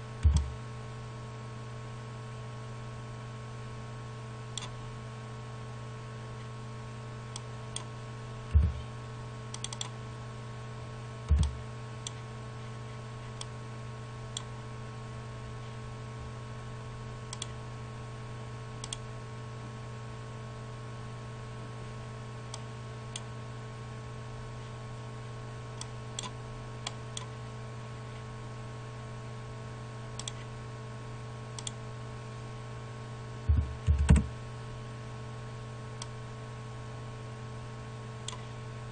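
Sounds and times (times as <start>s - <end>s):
low electrical hum: 0.0s - 38.9s
dull low thumps: 0.2s - 0.6s, 8.5s - 8.8s, 11.3s - 11.6s, 33.5s - 34.4s
mouse and keyboard clicks: 9.6s - 9.9s.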